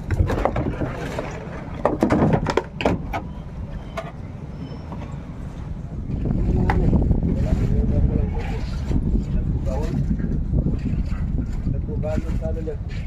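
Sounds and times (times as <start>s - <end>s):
wooden knocks and thumps: 0.0s - 3.3s
steady low rumble: 0.0s - 13.0s.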